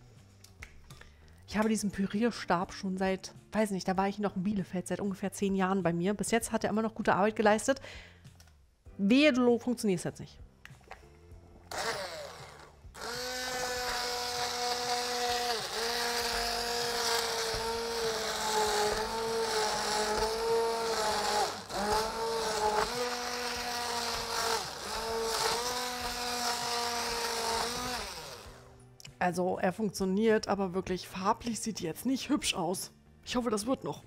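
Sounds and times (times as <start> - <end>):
immersion blender whine: 11.7 - 28.8.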